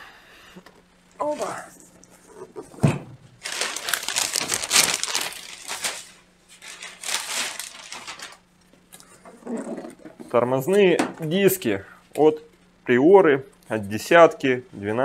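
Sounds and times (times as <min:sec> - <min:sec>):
packaging rustling and crinkling: 0:03.4 - 0:08.5.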